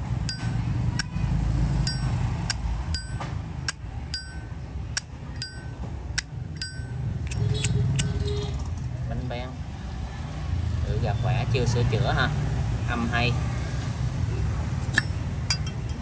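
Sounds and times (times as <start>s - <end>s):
lighter lid clicking open and shut: 6.6s - 8.2s.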